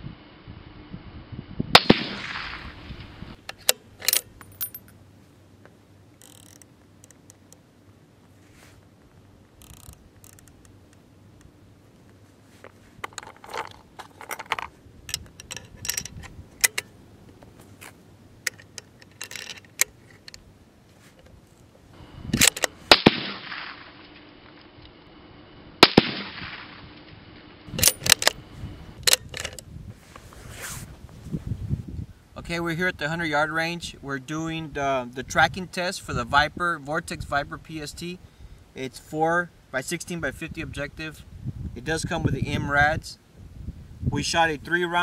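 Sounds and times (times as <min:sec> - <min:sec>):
rifle shot with echo: 0:01.8 - 0:02.9, 0:22.4 - 0:24.0, 0:25.8 - 0:26.9
metallic clicks of rifle handling: 0:03.4 - 0:05.0, 0:06.2 - 0:07.6, 0:09.6 - 0:11.5, 0:13.0 - 0:20.5, 0:22.4 - 0:22.8, 0:27.7 - 0:28.4, 0:29.0 - 0:29.6.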